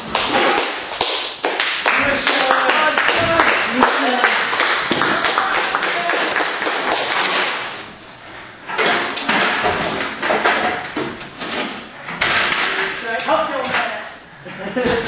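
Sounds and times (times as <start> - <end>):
crowd noise in large hall: 0.0 - 8.7.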